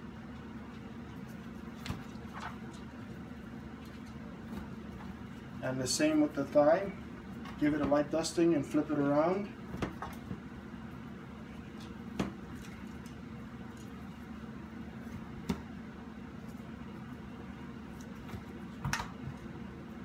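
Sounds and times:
low room hum: 0.0 - 20.0.

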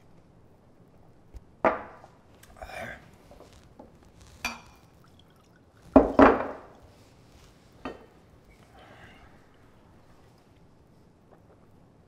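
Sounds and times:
liquor pouring into glass: 4.4 - 6.9.

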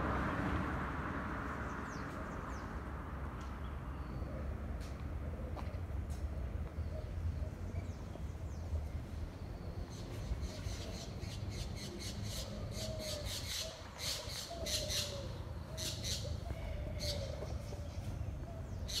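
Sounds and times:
birds calling: 9.5 - 19.0.

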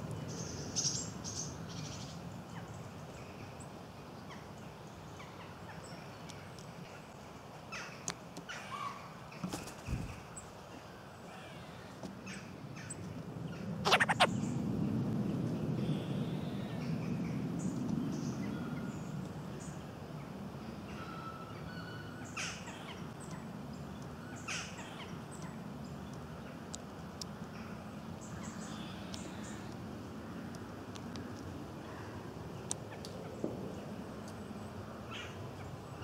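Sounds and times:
small birds chirping: 13.6 - 14.6, 22.2 - 29.8.

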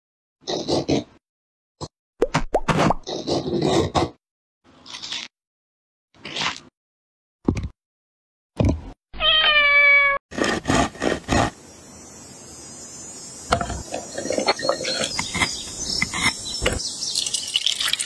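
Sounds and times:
cat meowing: 9.2 - 10.2
water pouring: 17.1 - 18.0.

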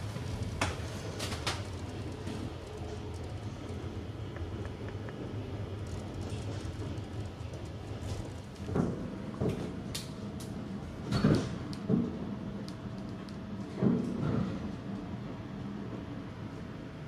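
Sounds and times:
steady low hum: 0.0 - 17.0
sliding doors knocking and rattling: 8.0 - 9.8.

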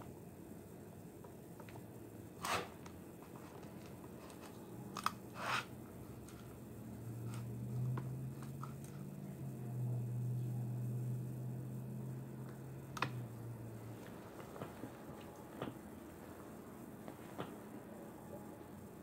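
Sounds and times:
low steady hum: 0.0 - 19.0.

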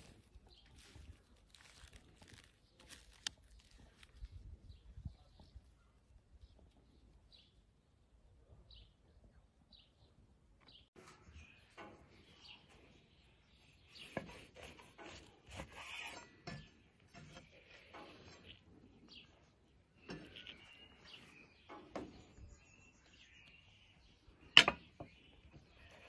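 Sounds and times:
rustling and crackling of meat: 0.0 - 4.9
bird chirps: 19.0 - 26.0.

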